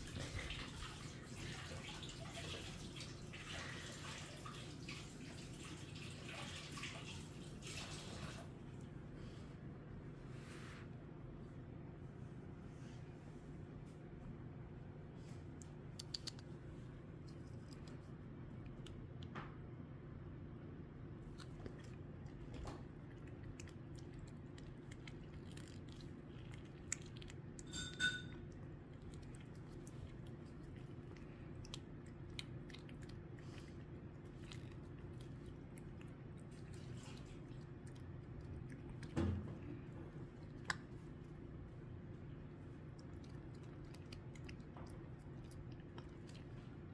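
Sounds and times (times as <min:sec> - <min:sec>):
steady low hum: 0:08.4 - 0:46.9
cat licking: 0:15.3 - 0:19.1, 0:21.2 - 0:46.9.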